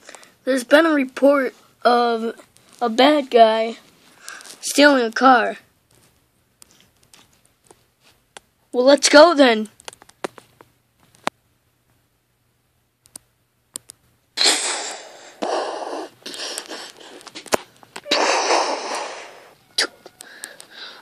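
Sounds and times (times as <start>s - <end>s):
child making crash noises: 18.0s - 20.1s.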